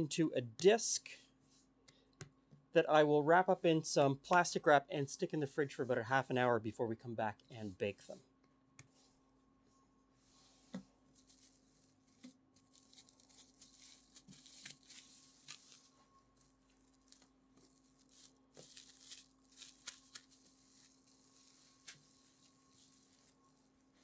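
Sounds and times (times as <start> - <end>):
plastic wrap crinkling: 11.2 - 24.0.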